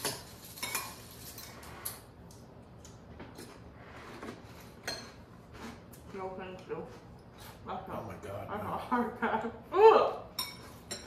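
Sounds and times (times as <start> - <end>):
spoons clinking against ceramic bowls: 0.0 - 1.6, 10.3 - 11.0.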